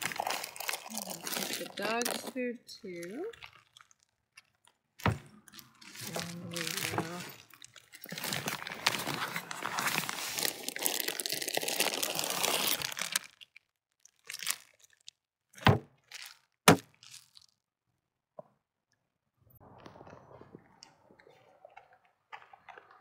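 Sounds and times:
plastic bags crinkling: 0:00.0 - 0:15.1, 0:16.0 - 0:17.6.

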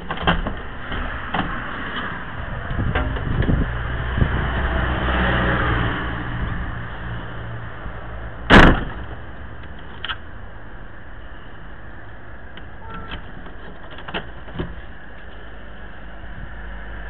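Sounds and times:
street noise low rumble: 0:00.0 - 0:17.0.

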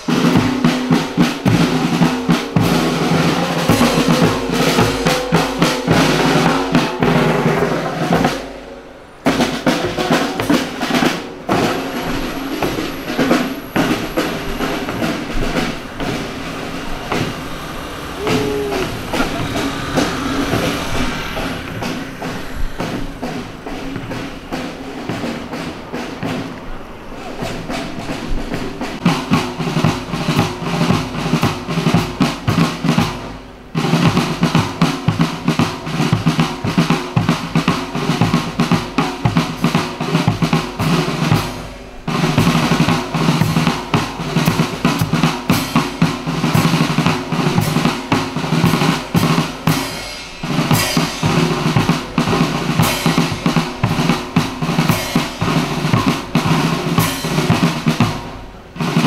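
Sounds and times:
snare drum rolls: 0:00.0 - 0:59.0
bass drum beats: 0:00.1 - 0:08.4, 0:11.5 - 0:24.4.

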